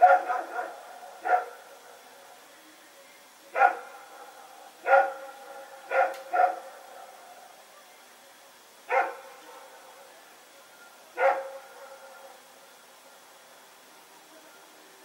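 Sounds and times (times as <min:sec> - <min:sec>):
dog barking: 0:00.0 - 0:01.6, 0:03.6 - 0:04.0, 0:04.8 - 0:07.1, 0:08.9 - 0:09.8, 0:11.2 - 0:12.4.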